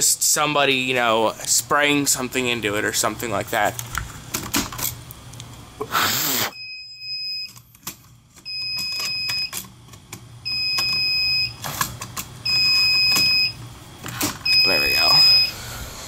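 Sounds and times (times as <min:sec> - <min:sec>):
fire alarm tone: 0:06.5 - 0:07.6, 0:08.4 - 0:09.6, 0:10.4 - 0:11.6, 0:12.4 - 0:13.6, 0:14.4 - 0:15.6.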